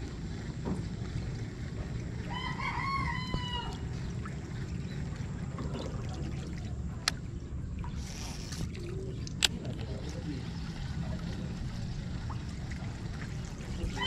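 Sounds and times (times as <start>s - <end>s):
rooster crowing: 2.3s - 3.8s.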